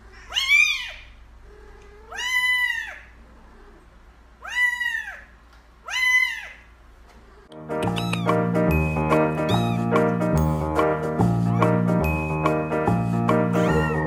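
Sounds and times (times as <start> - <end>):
kitten meowing: 0.2 - 1.1, 1.9 - 3.1, 4.4 - 6.6, 7.8 - 8.4, 9.4 - 9.9, 13.6 - 14.0.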